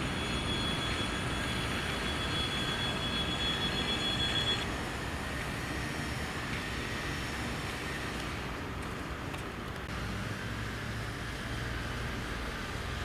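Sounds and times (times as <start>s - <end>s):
high-pitched wheel squeal: 0.0s - 4.7s.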